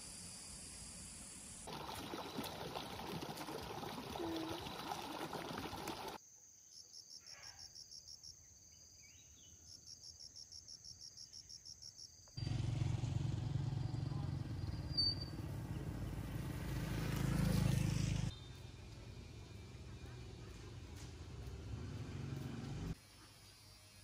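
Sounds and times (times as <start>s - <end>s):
insects whining and pulsing: 0.0s - 3.0s.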